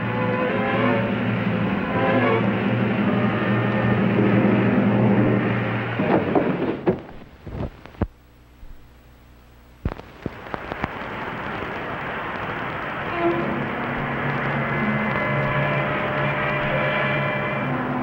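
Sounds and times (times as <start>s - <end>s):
rocketship engine hum: 0.0s - 7.9s, 10.4s - 18.0s
film pops and crackles: 7.0s - 8.8s, 9.8s - 15.7s.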